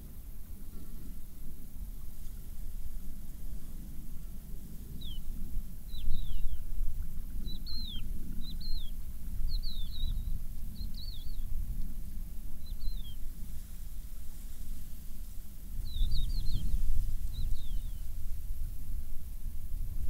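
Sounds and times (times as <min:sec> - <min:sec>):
small bird chirping: 0:04.9 - 0:06.7, 0:07.4 - 0:11.5, 0:12.6 - 0:13.3, 0:15.8 - 0:18.2.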